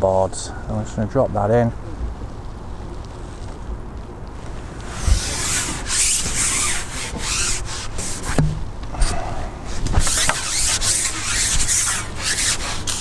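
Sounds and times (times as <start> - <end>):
fishing pole rubbing and scraping: 4.6 - 8.4, 9.0 - 13.0.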